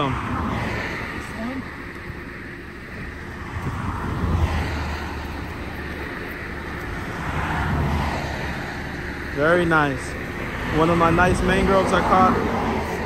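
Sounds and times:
low traffic rumble: 0:00.0 - 0:13.0
wind on microphone: 0:03.0 - 0:05.8.

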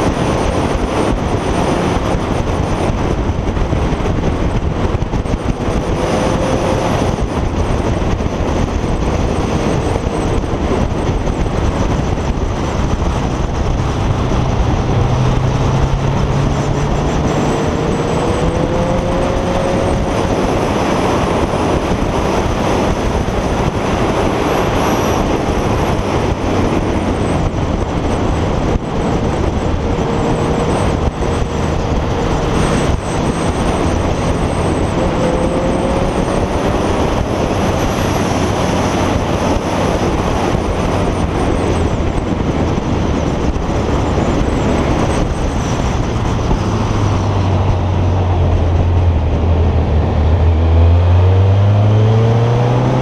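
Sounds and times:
motorcycle engine: 0:00.0 - 0:53.0
wind rushing over camera: 0:00.0 - 0:53.0.

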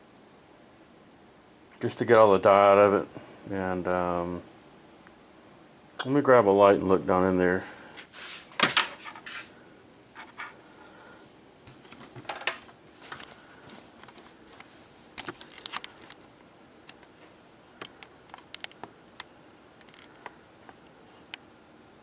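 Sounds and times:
quiet background hiss: 0:00.0 - 0:22.0
small clicks and taps: 0:17.8 - 0:21.4.

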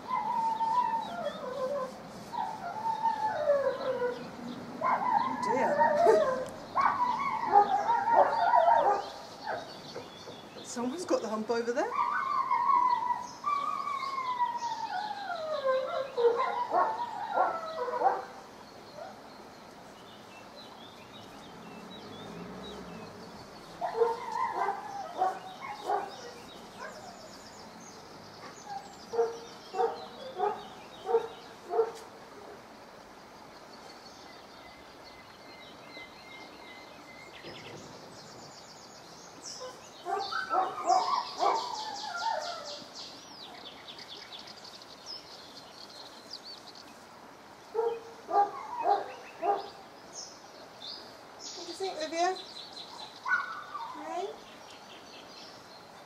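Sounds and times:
dog whining and grumbling: 0:04.8 - 0:08.8.

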